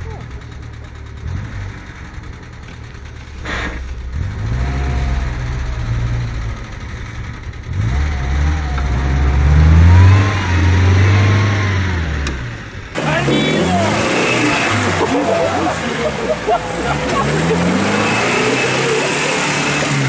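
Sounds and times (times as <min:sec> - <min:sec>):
engine revving hard: 0:03.5 - 0:06.7, 0:07.6 - 0:20.0.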